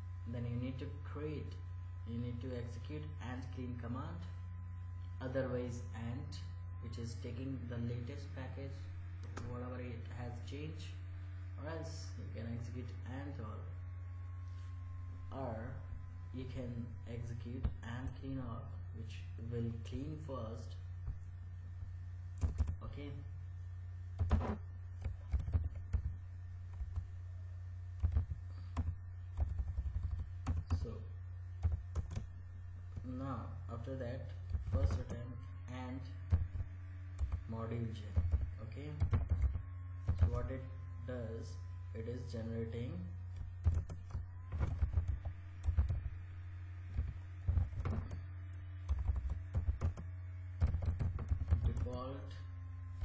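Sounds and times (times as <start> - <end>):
steady low hum: 0.0 - 53.0
computer keyboard typing: 22.4 - 22.8, 24.2 - 26.2, 28.0 - 30.8, 31.6 - 32.3, 36.3 - 37.4, 39.0 - 40.4, 43.4 - 46.1, 46.9 - 48.2, 48.8 - 51.9.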